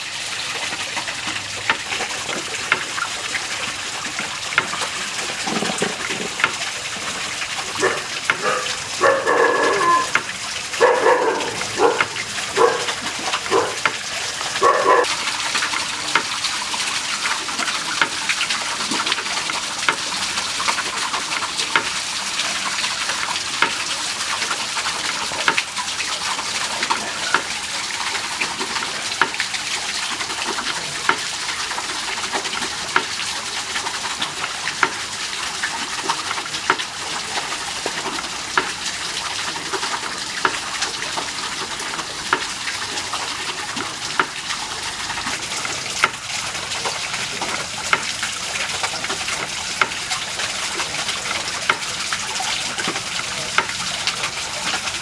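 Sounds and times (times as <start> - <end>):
dog barking: 7.8 - 10.1, 10.8 - 13.8, 14.6 - 15.1.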